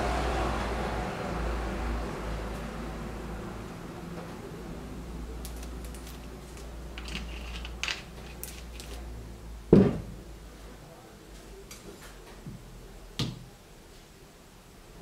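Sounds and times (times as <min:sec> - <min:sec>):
plastic bottle thumping on table: 0:09.7 - 0:10.1.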